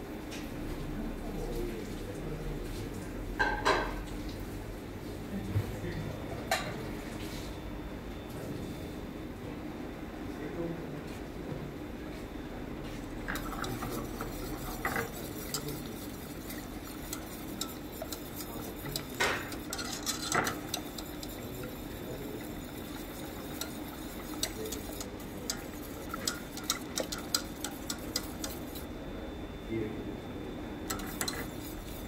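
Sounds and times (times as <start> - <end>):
steady low hum: 11.3 - 32.0
whisk scraping a saucepan: 13.1 - 28.9, 30.8 - 32.0
whisk knocking on pot: 13.2 - 28.9, 30.9 - 32.0.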